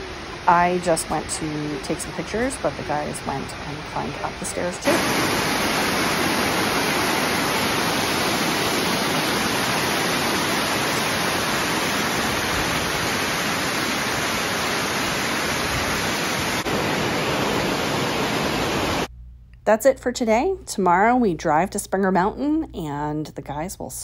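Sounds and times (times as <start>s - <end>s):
waterfall rushing over rock: 4.8s - 19.1s.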